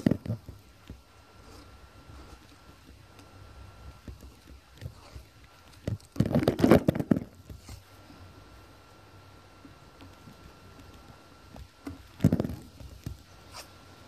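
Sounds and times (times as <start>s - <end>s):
tape ripping off a roll: 4.1s - 7.8s.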